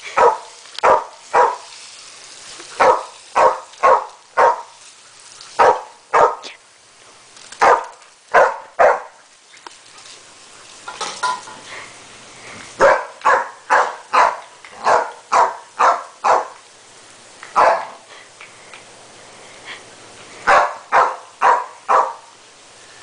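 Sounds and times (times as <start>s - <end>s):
dog barking: 0.2s - 1.7s, 2.8s - 4.7s, 5.6s - 6.5s, 7.6s - 9.2s, 12.8s - 16.6s, 17.6s - 18.0s, 20.5s - 22.3s.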